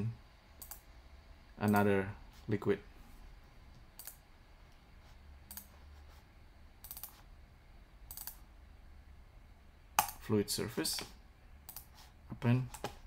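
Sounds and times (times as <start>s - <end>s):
computer mouse clicks: 0.6s - 0.8s, 3.7s - 4.2s, 5.5s - 5.7s, 6.8s - 7.2s, 8.1s - 8.4s, 11.7s - 11.9s.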